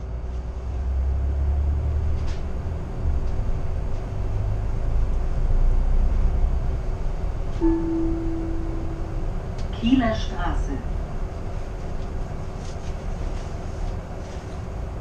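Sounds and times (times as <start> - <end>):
bus engine and road rumble: 0.0 - 15.0
faint steady hum: 4.0 - 15.0.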